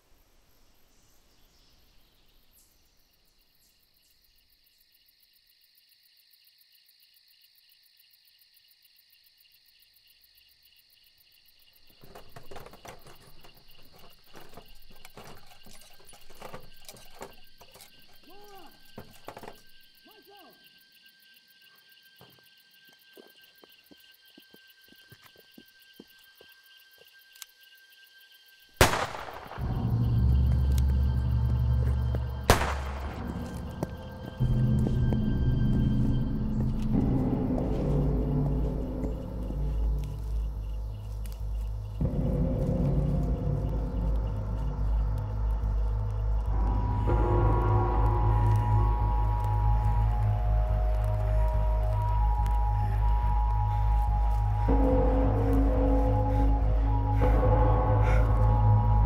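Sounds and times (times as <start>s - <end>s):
crickets and insects chirping: 0.0s - 59.0s
rustling and clattering: 11.8s - 19.8s.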